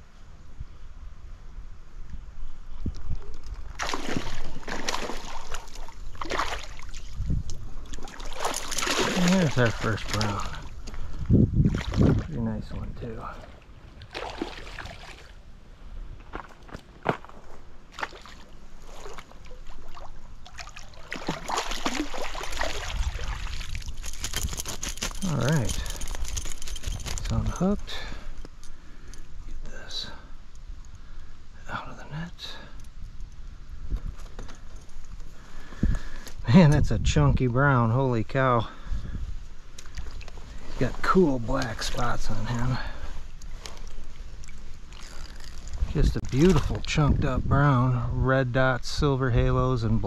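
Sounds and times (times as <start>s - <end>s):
fish thrashing in water: 3.7s - 7.1s, 7.8s - 10.8s, 14.1s - 15.3s, 18.0s - 27.2s
handling noises: 23.7s - 28.8s.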